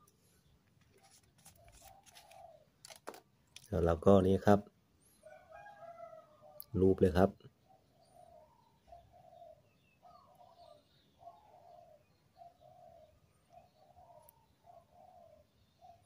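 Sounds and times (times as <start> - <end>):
dove cooing: 1.6 - 2.7, 7.7 - 16.0.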